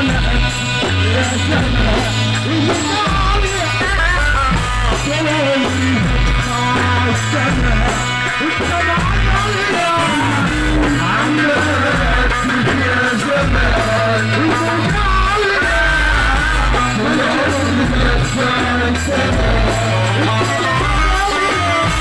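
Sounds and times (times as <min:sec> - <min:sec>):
band with bass and drums: 0:00.0 - 0:22.0
man singing into microphone: 0:00.0 - 0:22.0.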